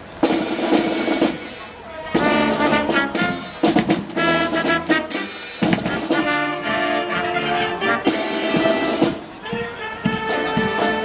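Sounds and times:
brass and saxophone chords: 2.0 - 11.0
snare drum beats: 2.2 - 6.5, 8.0 - 11.0.

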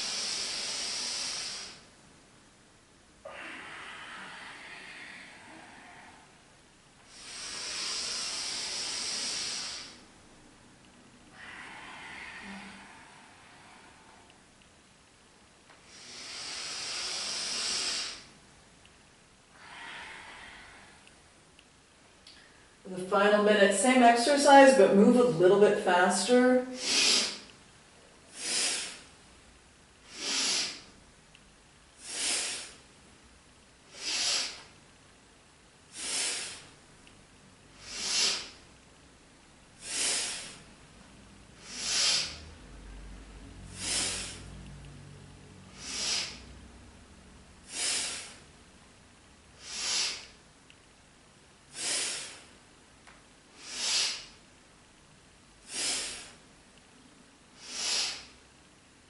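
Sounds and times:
woman breathing forcefully: 0.0 - 1.9, 3.2 - 10.2, 11.2 - 14.6, 15.7 - 18.4, 19.5 - 21.3, 26.7 - 27.6, 28.2 - 29.3, 30.0 - 31.0, 31.9 - 33.0, 33.8 - 34.8, 35.9 - 36.8, 37.7 - 38.7, 39.8 - 48.6, 49.4 - 50.4, 51.6 - 52.6, 53.4 - 54.5, 55.6 - 56.5, 57.5 - 58.5.

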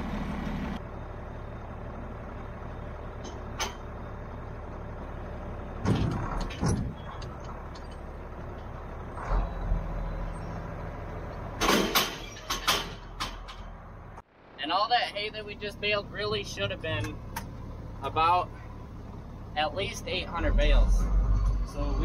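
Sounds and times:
tractor engine idling: 0.0 - 22.0
metallic clunks and knocks: 5.8 - 8.1, 11.6 - 13.8.

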